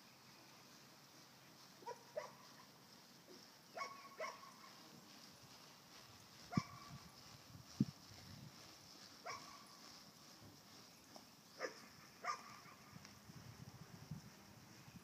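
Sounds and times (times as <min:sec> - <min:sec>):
dog barking: 0:01.8 - 0:02.5, 0:03.8 - 0:04.8, 0:06.5 - 0:07.0, 0:09.2 - 0:09.7, 0:11.6 - 0:12.8.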